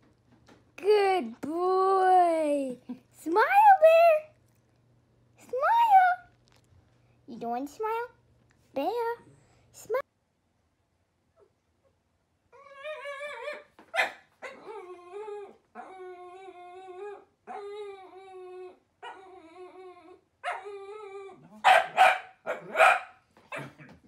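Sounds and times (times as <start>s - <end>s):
dog whining: 12.5s - 21.7s
dog barking: 13.9s - 14.6s, 21.6s - 23.8s.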